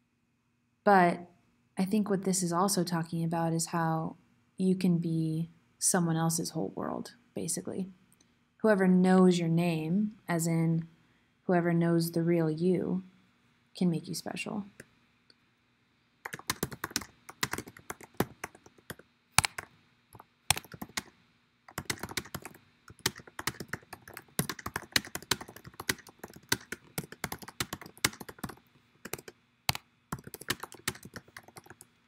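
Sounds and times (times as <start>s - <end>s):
typing on computer keyboard: 16.3s - 21.1s, 21.7s - 31.9s.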